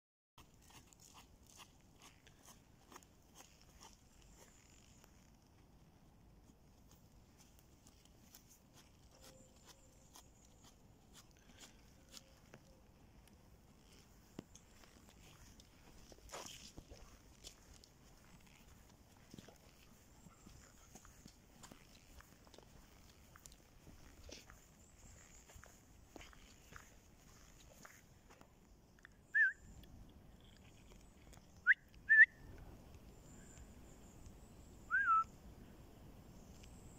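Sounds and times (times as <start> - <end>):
footsteps on soft woodland path: 0.4 - 31.8
person whistling: 29.3 - 29.6, 31.6 - 32.4, 34.9 - 35.3.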